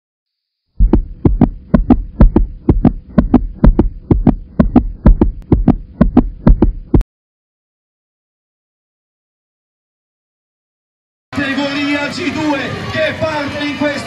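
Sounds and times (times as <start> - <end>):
heartbeat thumps: 0.8 - 7.0.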